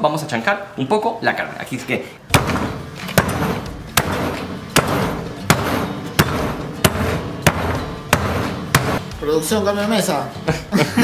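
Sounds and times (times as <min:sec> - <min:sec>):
heavy pot pounding meat on board: 0:02.3 - 0:09.2.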